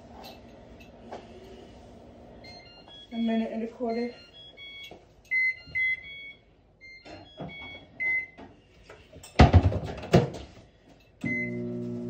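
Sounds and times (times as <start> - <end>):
microwave beep: 2.4 - 8.4, 11.2 - 12.0
microwave oven humming: 11.2 - 12.0.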